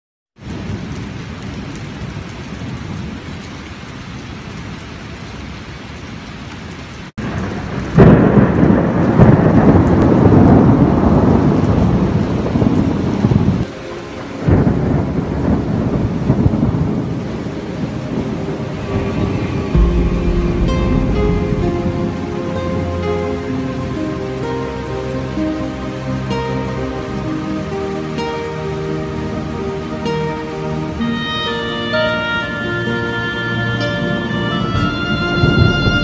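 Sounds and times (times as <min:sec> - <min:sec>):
steady rain: 0:00.4 - 0:36.0
thunder rumbling: 0:07.2 - 0:31.0, 0:33.8 - 0:36.0.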